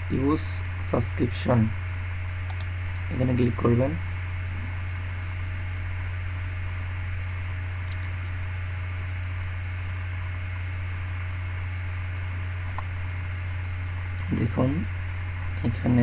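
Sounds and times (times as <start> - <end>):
low electrical hum with hiss: 0.0 - 16.0.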